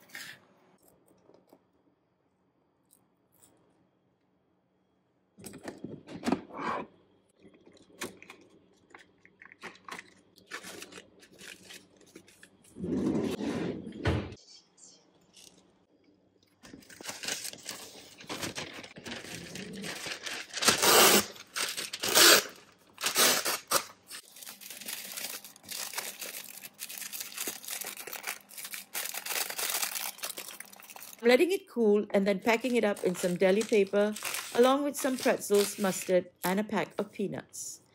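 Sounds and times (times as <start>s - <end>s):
paper crinkling: 9.7s - 12.6s, 16.6s - 31.2s, 32.5s - 36.2s
paper tearing: 17.0s - 31.2s, 33.0s - 36.1s.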